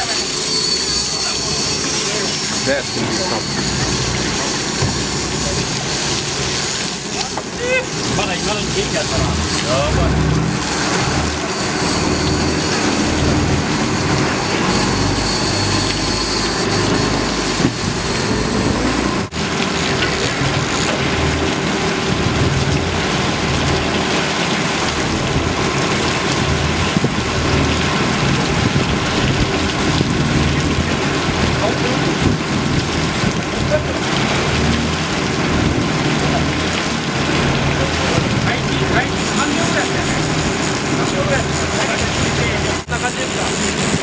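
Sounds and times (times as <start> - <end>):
boat engine running: 0.0 - 44.0
rush of wind and water: 0.0 - 44.0
wind buffeting microphone: 25.2 - 33.8.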